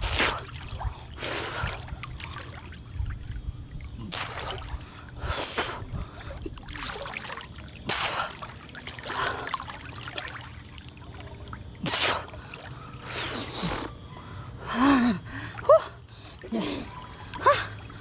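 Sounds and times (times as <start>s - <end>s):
water splashing and sloshing: 0.0s - 18.0s
swimmer breath puffing: 4.1s - 6.5s, 11.8s - 18.0s.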